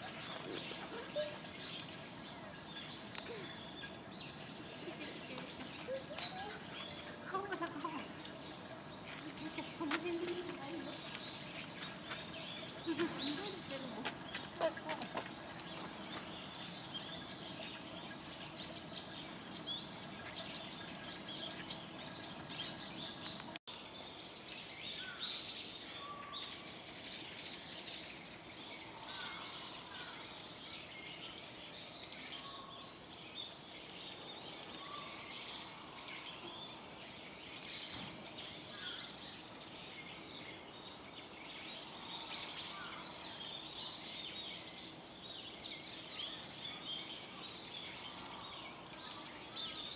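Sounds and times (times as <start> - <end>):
small birds chirping: 0.0 - 49.9.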